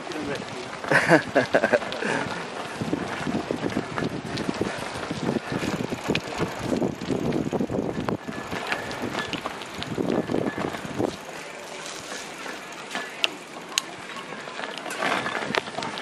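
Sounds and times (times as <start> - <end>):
bicycle tyres rolling: 0.0 - 16.0
wind buffeting microphone: 0.4 - 11.3.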